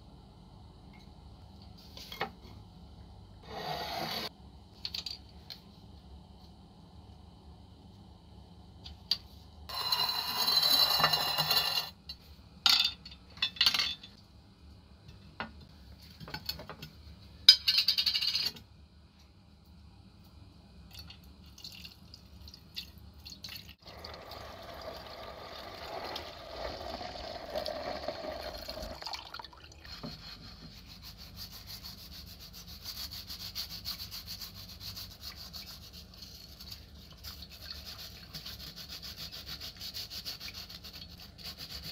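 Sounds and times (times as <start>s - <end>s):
liquid pouring into glass dish: 21.6s - 29.8s.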